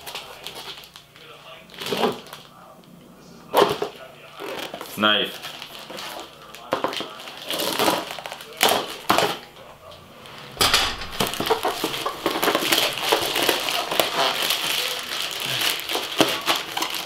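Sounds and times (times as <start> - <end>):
plastic wrap crinkling and ripping: 0.0 - 2.7, 3.5 - 9.5, 11.0 - 17.0
knife cutting plastic bag: 3.5 - 9.4, 11.2 - 17.0.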